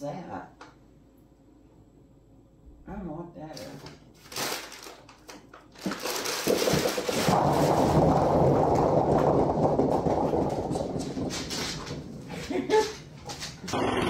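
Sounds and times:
rustling: 3.6s - 13.8s.

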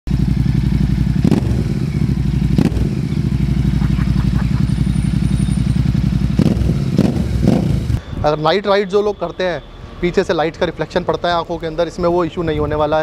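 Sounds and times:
motorcycle engine idling: 0.1s - 8.0s.

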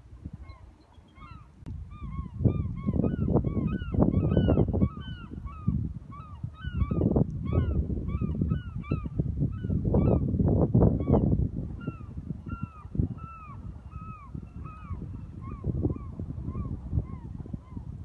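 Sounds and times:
flock of birds calling: 0.4s - 9.0s.

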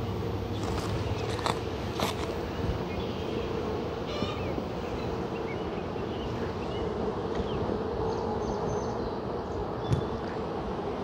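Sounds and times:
honey bees buzzing: 0.0s - 11.0s.

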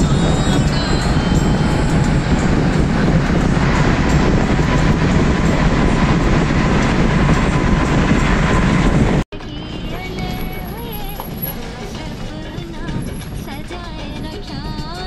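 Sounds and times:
rushing air: 0.0s - 9.3s
tyres rumbling on road: 0.0s - 15.0s.

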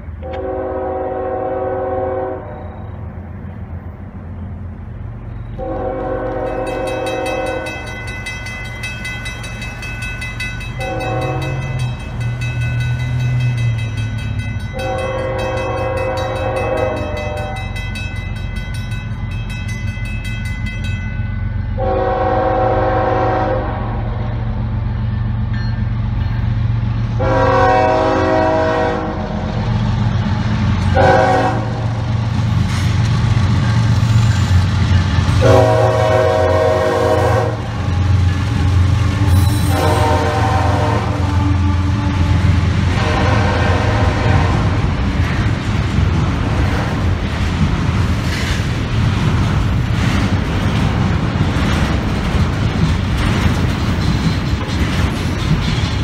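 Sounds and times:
diesel locomotive rumble: 0.0s - 56.0s
train air horn blasts: 0.2s - 2.8s, 5.6s - 7.9s, 10.8s - 11.9s, 14.7s - 17.8s, 21.7s - 24.4s, 27.2s - 29.6s, 30.9s - 32.0s, 35.3s - 44.9s
crossing bell ringing: 5.2s - 22.7s, 24.9s - 26.8s, 33.4s - 36.7s, 37.6s - 41.6s.

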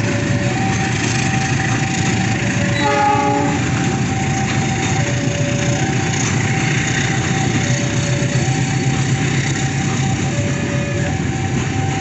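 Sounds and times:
freight train rumbling past: 0.0s - 12.0s
level crossing alarm two tones: 2.6s - 4.2s
locomotive horn blast: 2.7s - 4.0s.

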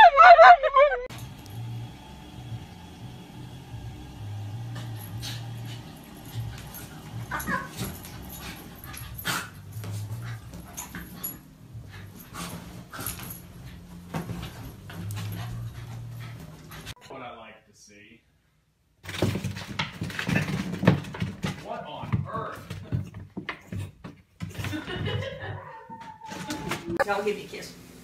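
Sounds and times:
dog yipping and whining: 0.0s - 1.1s, 6.8s - 9.5s, 25.5s - 27.0s.

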